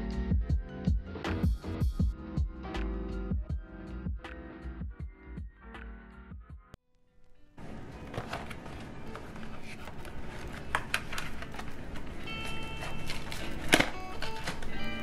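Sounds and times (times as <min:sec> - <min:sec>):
soft music: 0:00.0 - 0:15.0.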